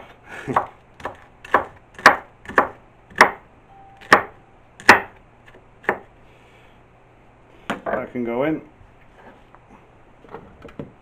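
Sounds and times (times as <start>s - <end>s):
knife chopping on wooden board: 0.0s - 3.4s, 4.0s - 5.2s, 5.8s - 6.1s.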